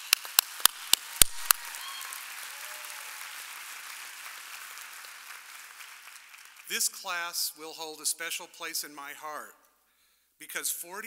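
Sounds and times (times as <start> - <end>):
sharp hand claps: 0.0 - 6.7
audience applause: 0.0 - 7.0.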